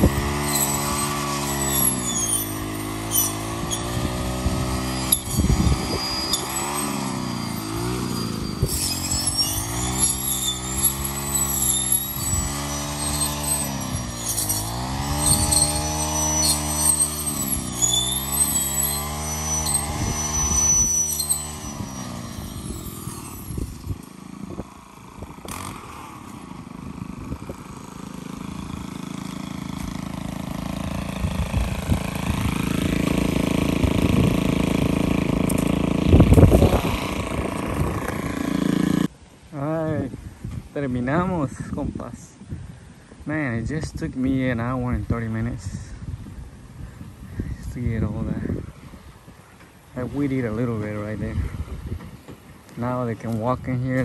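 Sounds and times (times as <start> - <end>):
string trimmer engine cutting weeds: 0.0 - 39.2.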